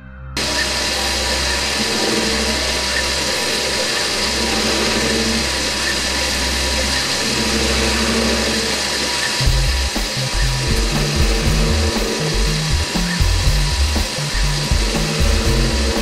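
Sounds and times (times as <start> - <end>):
lathe cutting metal: 0.4 - 16.0
music with choppy bass line: 9.4 - 16.0.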